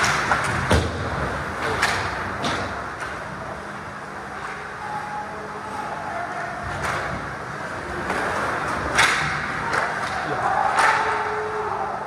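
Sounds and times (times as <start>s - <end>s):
stick hitting puck clacks: 8.9s - 11.2s.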